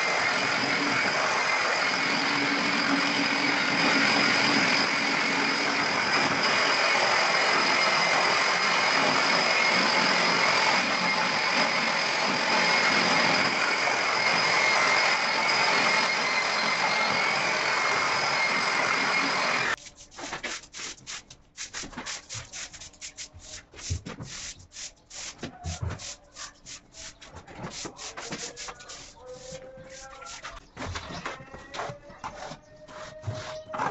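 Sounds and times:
angle grinder polishing floor: 0.0 - 19.8, 27.6 - 31.1.

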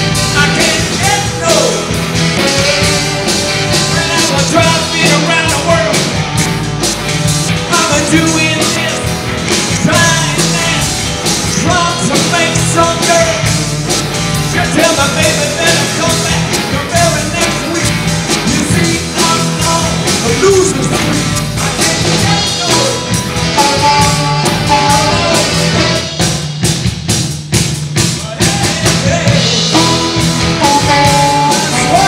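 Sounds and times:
blues-rock band playing: 0.0 - 32.0
saxophones: 1.7 - 5.4, 21.8 - 26.3, 29.5 - 32.0.

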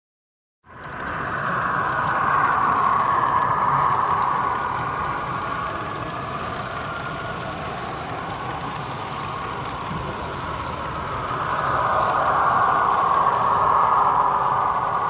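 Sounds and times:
model train rolling hum: 0.7 - 15.0.

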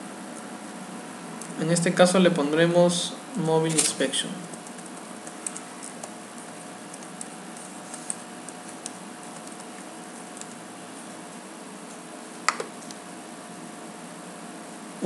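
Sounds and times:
steady hum and hiss: 0.0 - 15.0
keyboard keystrokes: 4.6 - 10.6.

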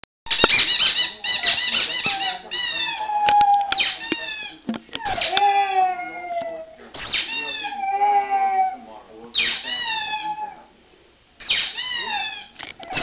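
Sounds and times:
dog howling and whining: 2.0 - 4.0, 5.0 - 8.9, 9.5 - 10.7, 11.7 - 13.0.

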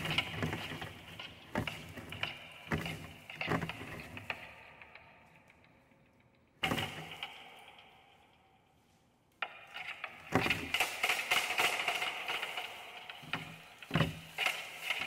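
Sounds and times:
wooden spools rattling: 0.0 - 4.5, 6.6 - 7.4, 9.7 - 15.0.

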